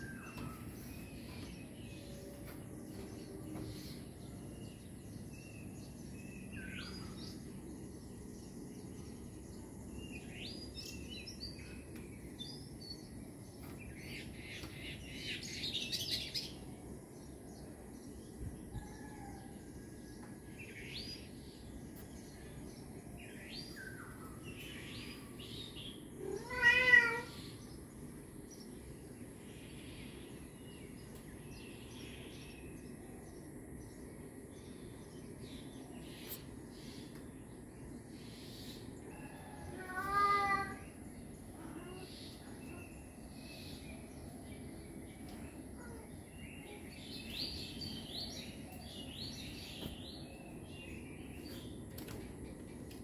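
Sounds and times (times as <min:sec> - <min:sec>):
birds chirping: 0:00.0 - 0:18.2, 0:20.4 - 0:53.0
kitten meowing: 0:26.2 - 0:27.4.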